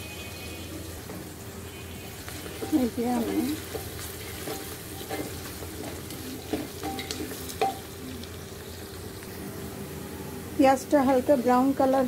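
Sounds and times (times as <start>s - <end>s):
onions sizzling in oil: 0.0s - 12.0s
wooden spatula scraping pot: 2.3s - 7.8s.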